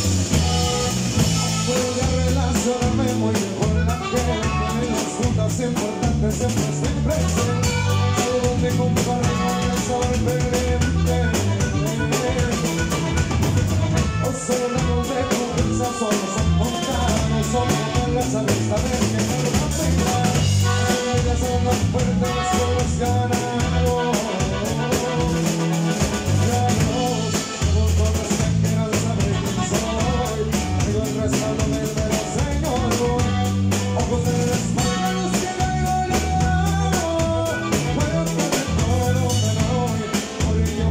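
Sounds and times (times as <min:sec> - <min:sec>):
bass line: 0:00.0 - 0:40.9
drum kit beat: 0:00.0 - 0:40.9
guitar: 0:00.0 - 0:40.9.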